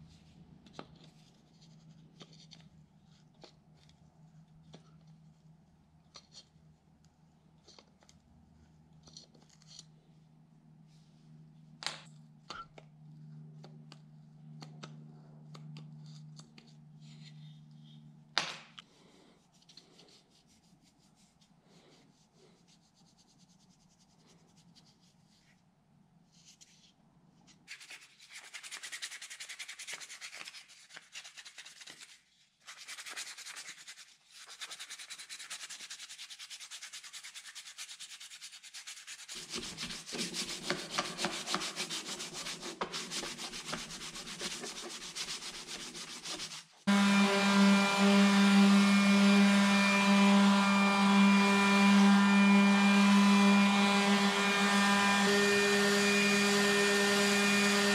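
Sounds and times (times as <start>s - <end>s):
sandpaper rubbing on wood: 32.7s - 46.8s.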